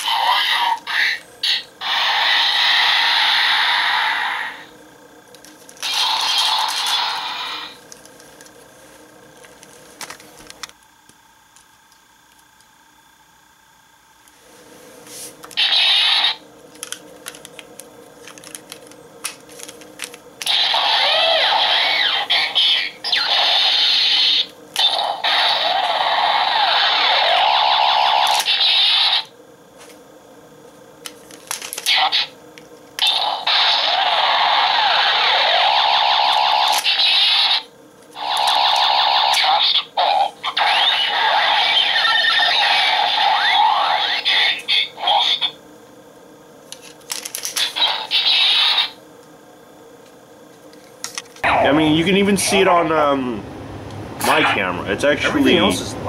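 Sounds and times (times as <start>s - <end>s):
toy electronic sound effects: 5.8s - 7.8s, 15.6s - 16.4s, 20.4s - 29.3s, 33.0s - 45.6s, 47.6s - 49.0s.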